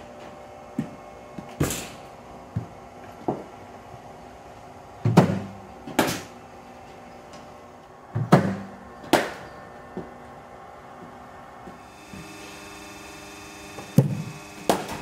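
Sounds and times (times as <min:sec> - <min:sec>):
bat striking cricket ball: 0:05.1 - 0:06.3, 0:08.2 - 0:09.5, 0:14.7 - 0:15.0
bowling machine firing ball: 0:08.1 - 0:09.6, 0:13.9 - 0:15.0.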